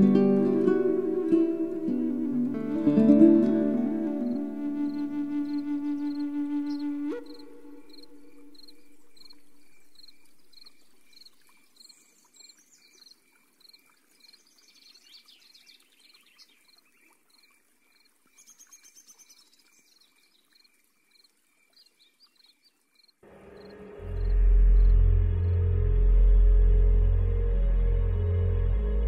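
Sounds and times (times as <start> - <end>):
music: 0.0 - 8.2, 23.2 - 29.0
bird calls: 4.3 - 11.5.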